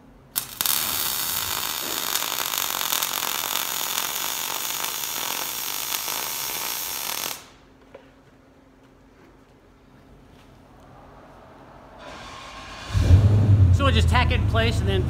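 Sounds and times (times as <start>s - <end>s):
welding arc hissing: 0.3s - 7.6s.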